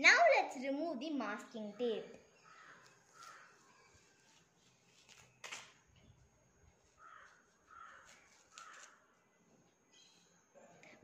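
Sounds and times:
paper handling: 2.8 - 5.8, 7.8 - 9.0.

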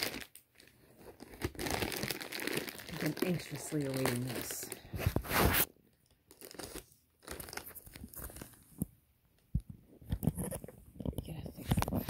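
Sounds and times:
plastic bag ripping: 0.0 - 0.4, 1.2 - 5.7, 6.3 - 8.6
plastic crinkling and rustling: 0.0 - 8.8.

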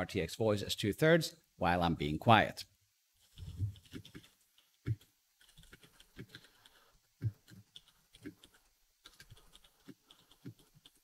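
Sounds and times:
keyboard typing: 3.3 - 11.0.

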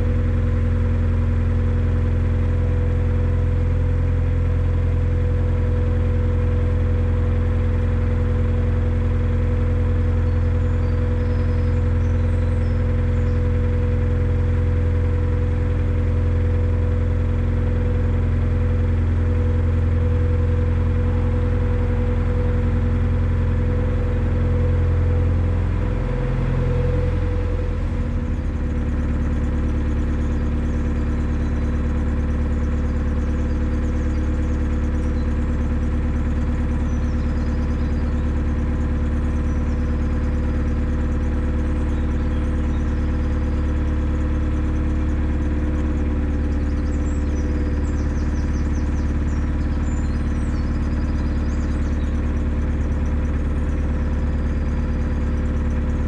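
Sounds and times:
boat diesel engine running: 0.0 - 56.0.

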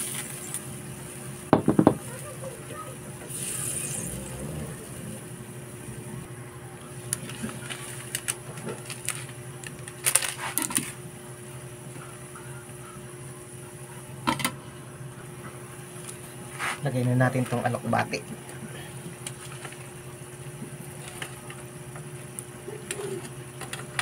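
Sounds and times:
steady low hum: 0.0 - 24.0
broth simmering with pops: 18.0 - 24.0.

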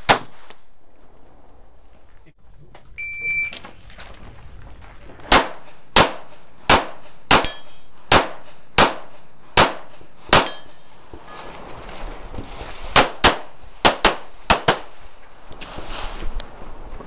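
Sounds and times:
pistol shots: 0.0 - 0.6, 5.3 - 10.7, 12.9 - 14.9.

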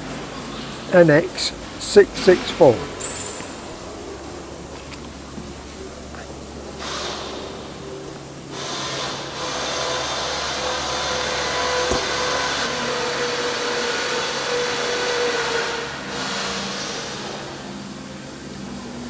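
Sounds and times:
electric fan motor whirring: 8.5 - 17.8.

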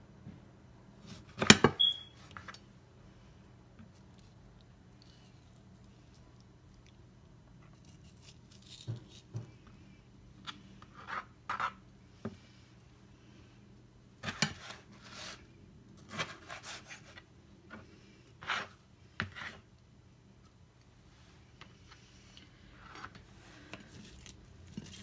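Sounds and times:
knife scraping: 10.4 - 11.8, 16.0 - 17.2, 18.4 - 19.6.

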